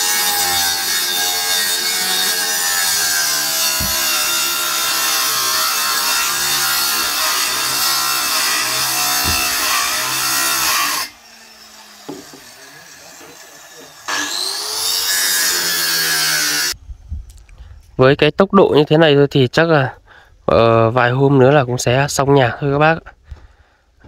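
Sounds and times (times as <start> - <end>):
circular saw cutting wood: 0.0 - 16.8.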